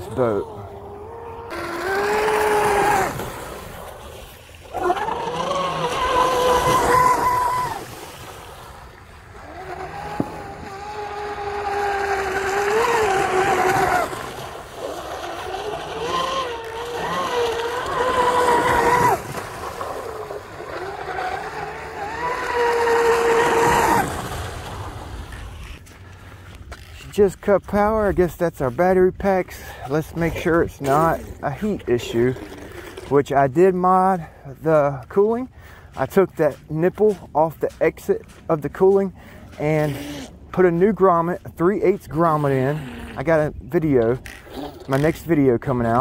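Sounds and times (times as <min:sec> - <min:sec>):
electric boat motor whining: 0:00.0 - 0:03.8, 0:04.6 - 0:07.8, 0:09.2 - 0:25.8.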